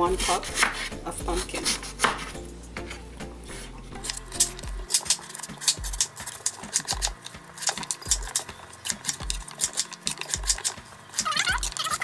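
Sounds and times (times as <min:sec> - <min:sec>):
knife slicing on a cutting board: 0:00.2 - 0:02.4.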